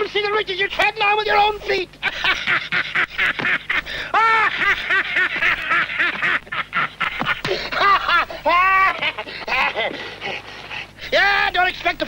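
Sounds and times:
old man cackling with laughter: 2.0 - 10.4.

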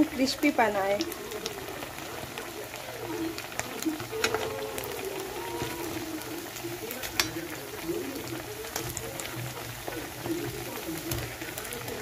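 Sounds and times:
oil sizzling with pops: 0.0 - 12.0.

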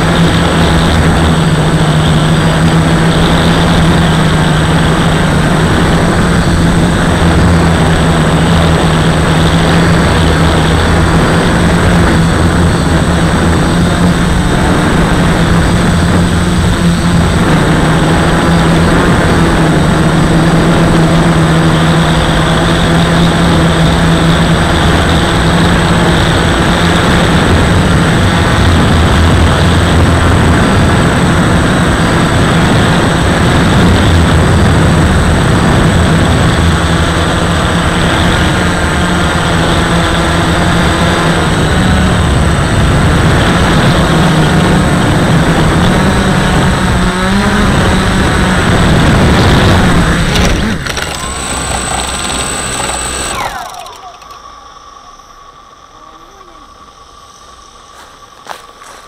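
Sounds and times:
drone propellers buzzing: 0.0 - 59.0.

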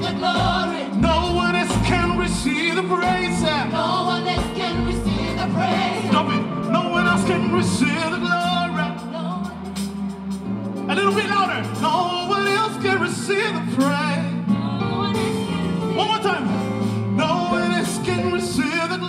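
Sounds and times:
man singing into microphone: 0.0 - 3.8, 6.0 - 9.3, 17.2 - 19.0
backing singers: 0.0 - 11.0
electric bass: 0.0 - 13.0
drums: 0.0 - 19.0
keyboard: 0.0 - 19.0.

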